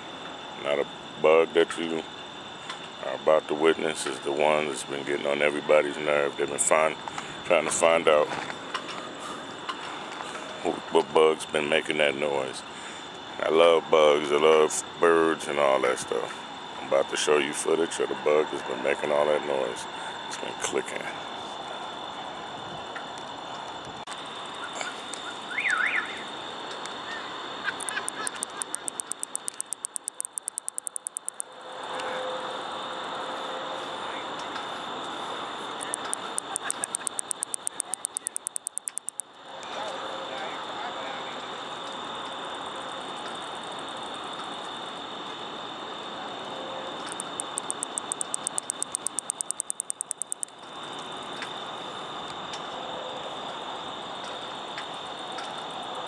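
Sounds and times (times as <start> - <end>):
steady background hum: 0.0 - 56.0
katydid ticking call: 27.7 - 31.4, 35.8 - 39.3, 47.1 - 50.6.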